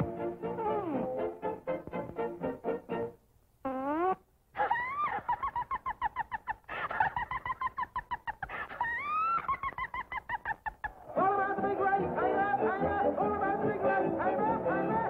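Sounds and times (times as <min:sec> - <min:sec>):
cartoon warbling wail: 0:04.6 - 0:05.3, 0:08.6 - 0:09.6.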